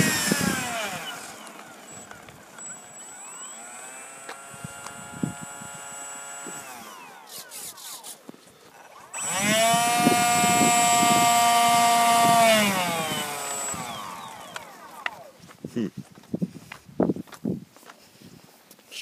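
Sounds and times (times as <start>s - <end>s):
electric ducted fans whining: 0.0s - 8.0s, 9.1s - 15.4s.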